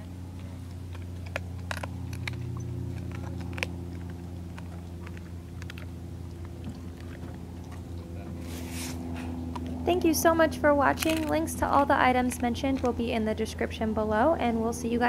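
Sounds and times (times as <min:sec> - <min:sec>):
dog licking and chewing: 0:00.0 - 0:08.3
steady low hum: 0:00.0 - 0:15.0.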